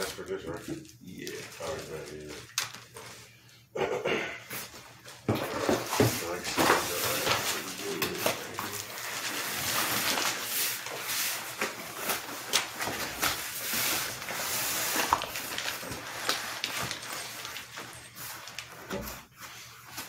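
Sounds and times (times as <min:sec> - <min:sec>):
cardboard scraping and rustling: 0:05.2 - 0:20.0.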